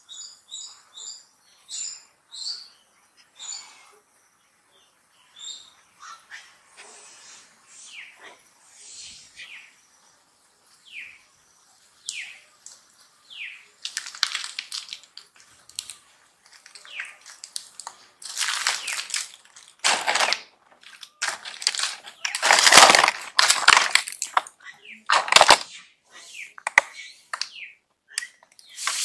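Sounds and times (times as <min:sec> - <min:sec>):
leaves and twigs crackling: 0:12.0 - 0:25.7.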